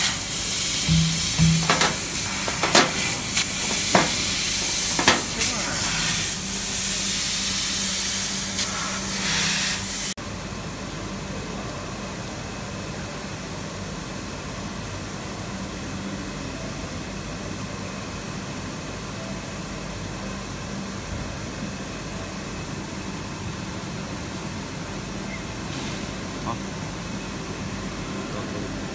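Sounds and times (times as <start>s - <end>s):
machinery hiss and hum: 0.0s - 10.2s.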